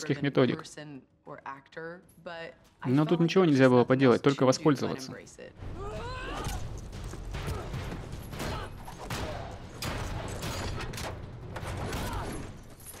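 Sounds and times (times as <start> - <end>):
chains and metal clanking: 9.8 - 11.1, 12.4 - 13.0.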